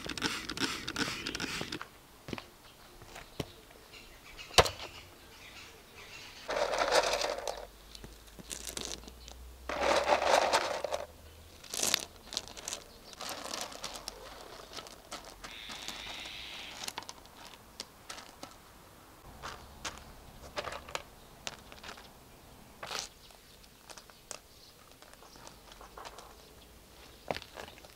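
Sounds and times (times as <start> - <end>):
gravel pouring: 6.5 - 7.7, 8.3 - 18.5
stones clicking and scraping: 6.5 - 18.7, 19.4 - 22.1, 22.8 - 26.5.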